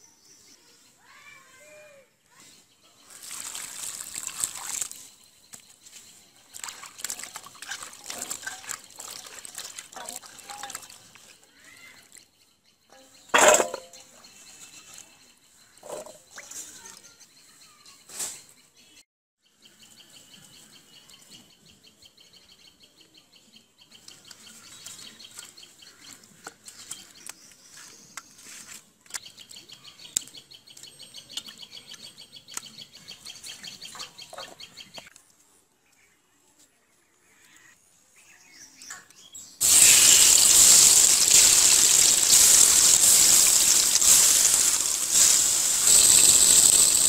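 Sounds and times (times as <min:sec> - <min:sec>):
vegetables splashing in steel bowl: 0:03.1 - 0:05.0, 0:06.5 - 0:11.3, 0:39.6 - 0:47.0
small birds chirping: 0:19.6 - 0:35.2, 0:37.4 - 0:47.0.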